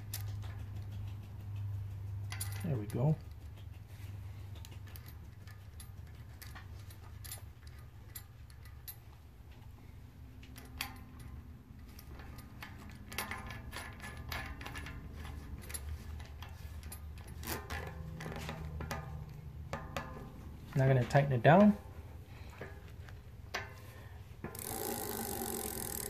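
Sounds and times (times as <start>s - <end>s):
bike cassette metallic clicking: 24.4s - 26.0s.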